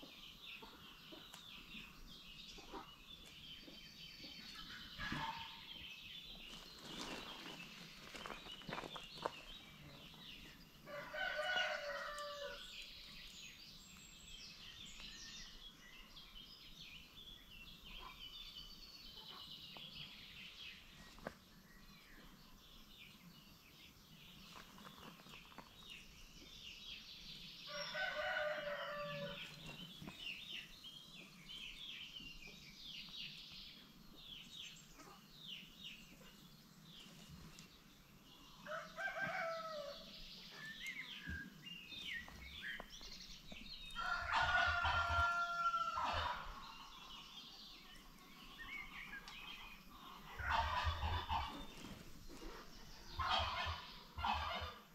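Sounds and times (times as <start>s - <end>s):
chickens clucking: 2.5s - 5.8s, 47.9s - 54.9s
rooster crowing: 10.9s - 12.6s, 27.7s - 29.4s, 38.6s - 40.0s, 44.0s - 46.4s.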